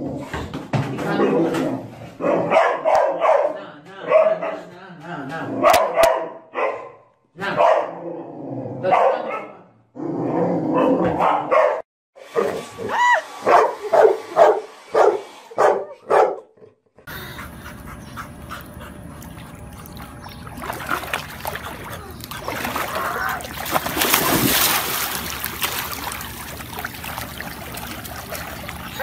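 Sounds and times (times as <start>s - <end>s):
dog barking and yelping: 2.2s - 3.5s, 5.6s - 7.0s, 7.6s - 8.0s, 10.7s - 11.8s, 12.4s - 16.5s
water noise: 17.2s - 29.0s.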